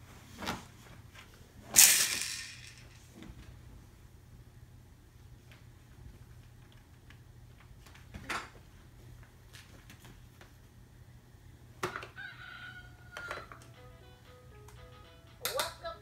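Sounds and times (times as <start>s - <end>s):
electronic toy rooster sound: 12.0s - 13.9s.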